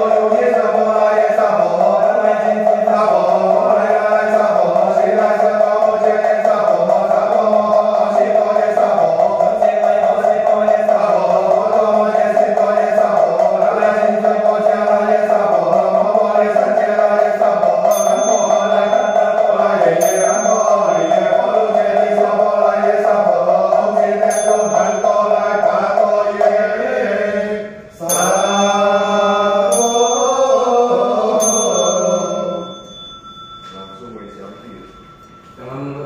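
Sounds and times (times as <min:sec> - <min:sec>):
man chanting prayer: 0:00.0 - 0:24.5
small bell ringing: 0:17.8 - 0:21.8, 0:24.2 - 0:26.0, 0:28.0 - 0:36.0.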